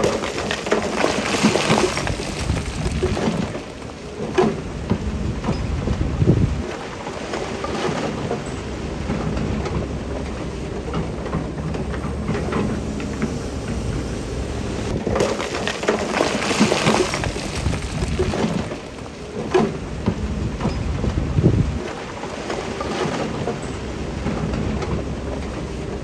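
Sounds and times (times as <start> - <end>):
rocks tumbling and grinding: 0.0 - 7.8, 14.9 - 23.5
machinery engine hum: 1.9 - 26.0.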